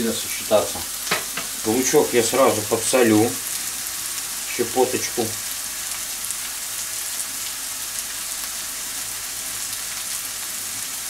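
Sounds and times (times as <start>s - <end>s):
onion sizzling in a skillet: 0.0s - 11.0s
person speaking: 1.6s - 3.4s, 4.5s - 5.4s.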